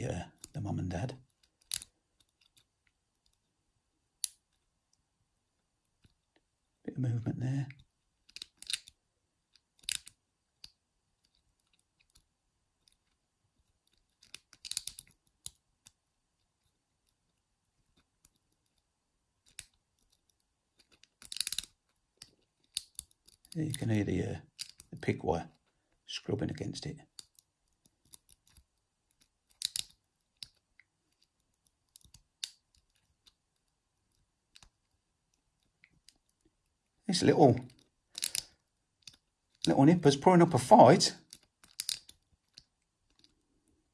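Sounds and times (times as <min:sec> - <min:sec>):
lock pick scraping and clicking: 0:01.4 - 0:03.4, 0:08.3 - 0:12.2, 0:13.8 - 0:16.0, 0:19.4 - 0:23.9, 0:24.6 - 0:24.9, 0:27.2 - 0:33.7, 0:37.7 - 0:39.7, 0:41.3 - 0:43.4.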